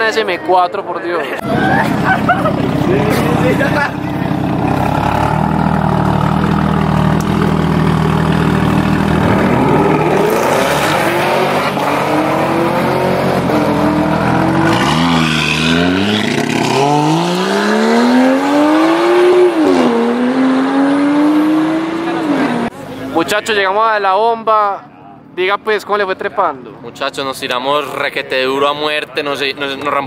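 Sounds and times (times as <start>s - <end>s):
car engine accelerating: 1.4s - 22.8s.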